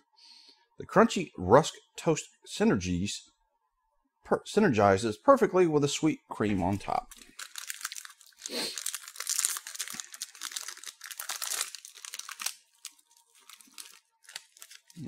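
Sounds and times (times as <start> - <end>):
plastic wrapper crinkling and tearing: 6.8 - 15.0.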